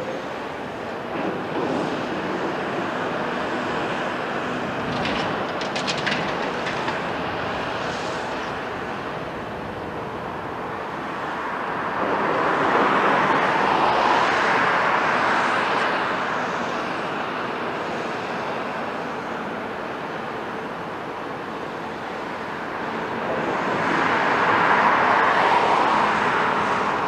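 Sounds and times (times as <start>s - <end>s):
excavator diesel and hydraulics: 0.0s - 27.0s
rattling clatter: 4.8s - 7.2s.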